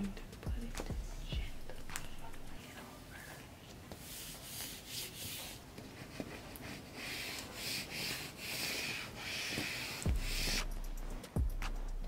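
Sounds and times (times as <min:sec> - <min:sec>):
hands rubbing transfer paper: 0:03.9 - 0:10.7.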